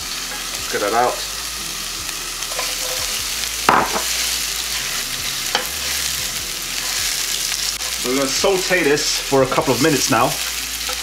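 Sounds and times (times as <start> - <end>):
onion sizzling in hot oil: 0.0 - 11.0
spatula stirring in pan: 2.4 - 11.0.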